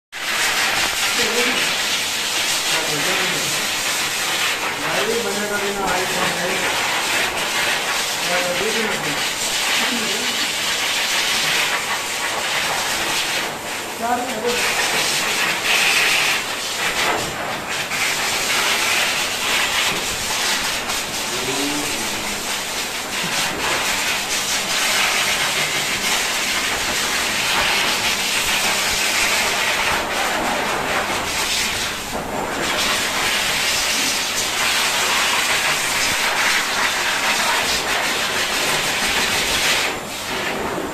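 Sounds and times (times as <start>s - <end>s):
grooming dryer blowing air: 0.2s - 40.9s.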